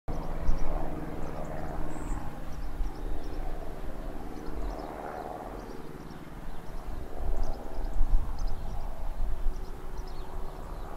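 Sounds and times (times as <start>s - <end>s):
distant diesel locomotive drone: 0.1s - 10.9s.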